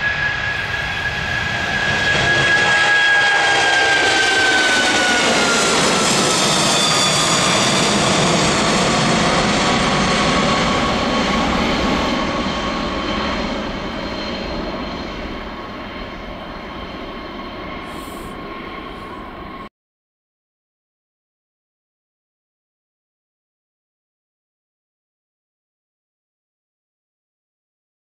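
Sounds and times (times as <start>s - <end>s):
jet engines rumbling and whining: 0.0s - 19.7s.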